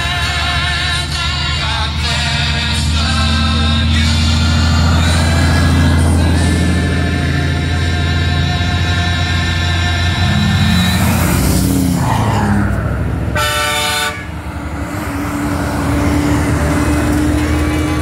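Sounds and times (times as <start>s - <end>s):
trucks passing on road: 0.0s - 18.0s
air horn blast: 13.3s - 14.5s.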